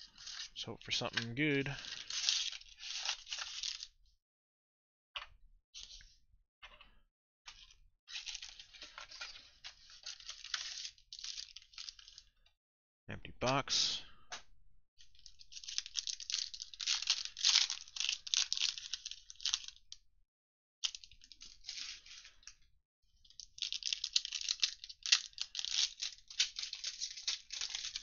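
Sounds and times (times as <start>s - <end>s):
foil wrappers crinkling and tearing: 0.0s - 3.9s, 8.1s - 12.3s, 15.1s - 19.8s, 20.8s - 22.5s, 23.3s - 28.0s.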